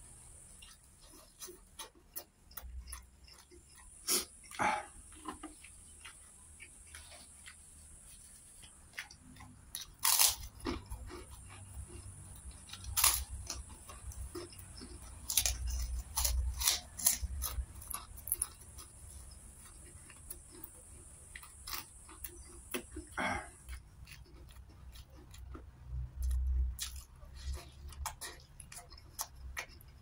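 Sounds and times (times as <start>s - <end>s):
person chewing food: 0.0s - 30.0s
breathy noise: 4.0s - 5.1s, 23.0s - 23.7s.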